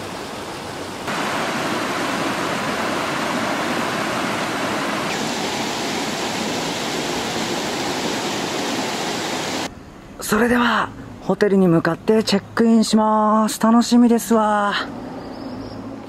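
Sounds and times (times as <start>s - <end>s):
river rushing over rocks: 0.0s - 9.7s.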